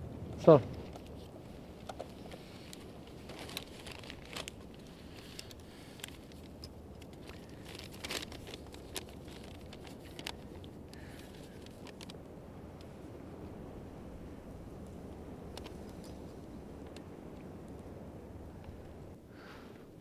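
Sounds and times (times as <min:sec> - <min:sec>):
low background rumble: 0:00.0 - 0:20.0
small clicks and crackles: 0:00.4 - 0:13.0, 0:14.7 - 0:17.9.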